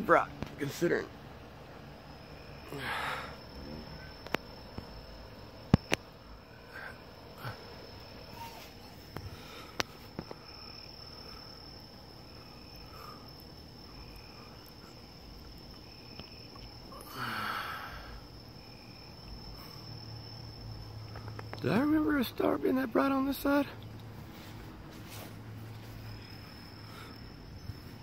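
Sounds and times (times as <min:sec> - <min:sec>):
crickets trilling: 0:00.0 - 0:28.0
rustling close to microphone: 0:24.0 - 0:26.1.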